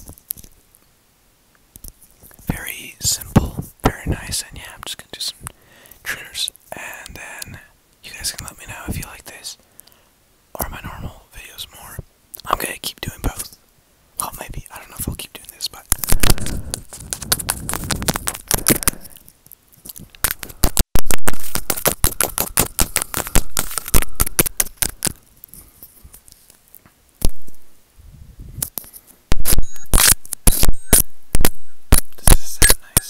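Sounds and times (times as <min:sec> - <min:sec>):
microphone being bitten: 0:03.1 - 0:04.2, 0:15.8 - 0:25.2, 0:27.2 - 0:27.7, 0:28.4 - 0:33.0.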